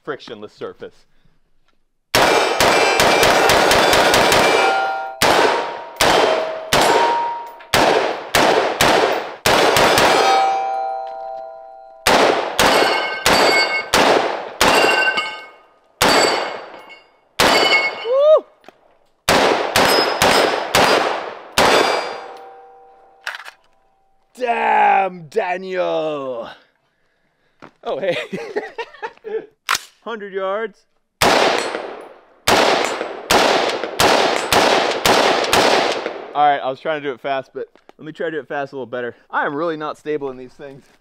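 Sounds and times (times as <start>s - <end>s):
rifle shots: 2.1s - 10.7s, 12.0s - 15.4s, 16.0s - 16.8s, 17.4s - 18.0s, 19.3s - 22.6s, 31.2s - 36.3s
steel targets ringing: 2.3s - 7.8s, 10.0s - 14.0s, 14.6s - 18.1s, 19.8s - 20.5s, 21.6s - 23.3s.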